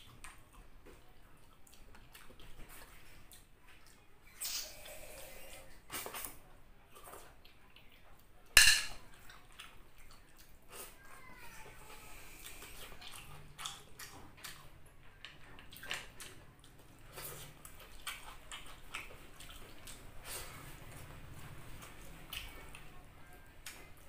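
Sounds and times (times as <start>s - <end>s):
wet chewing with lip smacks: 0.0s - 4.9s, 9.1s - 10.9s, 12.3s - 24.0s.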